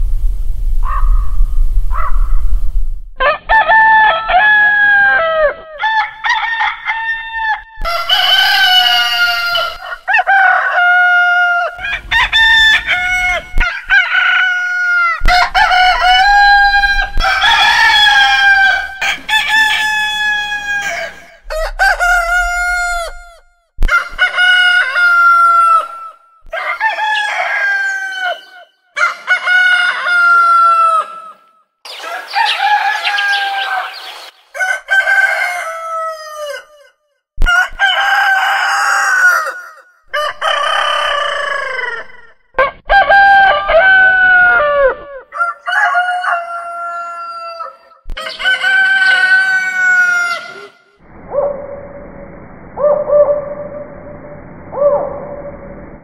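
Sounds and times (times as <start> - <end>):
roosters crowing: 3.2 - 51.5.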